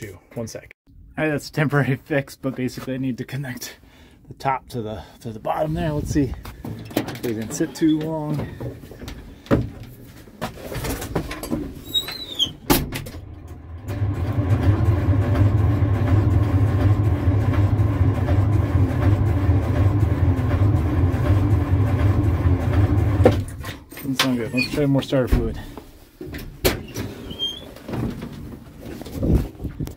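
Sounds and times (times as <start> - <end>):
starter motor cranking diesel engine: 12.8 - 24.6.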